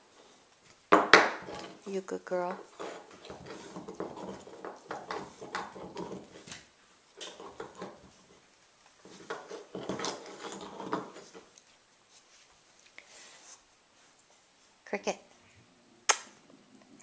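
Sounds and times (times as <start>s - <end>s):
dog chewing and gnawing: 2.7s - 6.6s, 7.2s - 11.6s.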